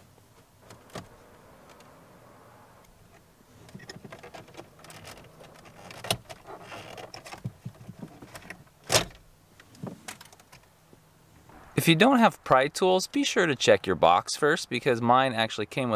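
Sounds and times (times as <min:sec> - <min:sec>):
plastic scraping and creaking: 0:03.1 - 0:08.6.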